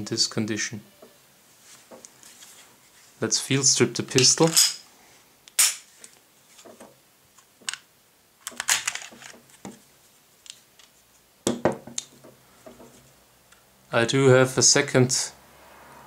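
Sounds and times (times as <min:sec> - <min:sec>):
pistol parts clicking and clacking: 0:04.1 - 0:04.9, 0:05.5 - 0:05.9, 0:07.6 - 0:09.4.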